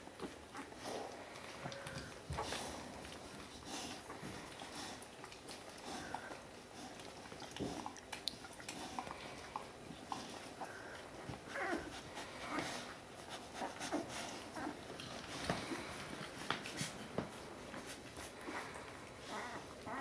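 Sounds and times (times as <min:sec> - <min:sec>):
soft clicks and shuffling: 0:09.8 - 0:19.9
puppies squeaking and whimpering: 0:10.5 - 0:12.9, 0:19.2 - 0:20.0.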